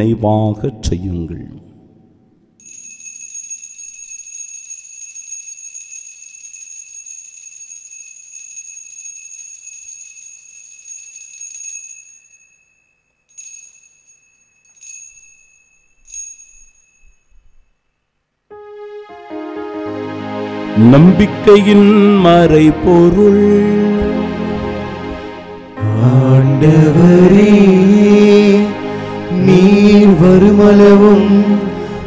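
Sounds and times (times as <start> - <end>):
altar bells jingling: 2.6 - 17.8.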